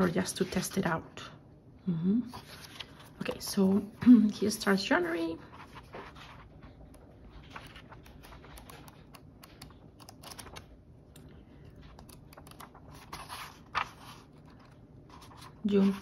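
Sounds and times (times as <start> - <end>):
paper pages turning: 2.4 - 4.0, 5.4 - 16.0.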